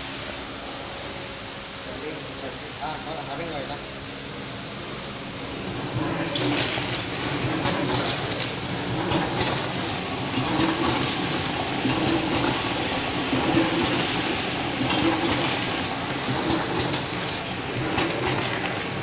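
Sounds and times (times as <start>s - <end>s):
packaging machine rattling: 5.6s - 19.0s
sharp machine clicks: 5.8s - 19.0s.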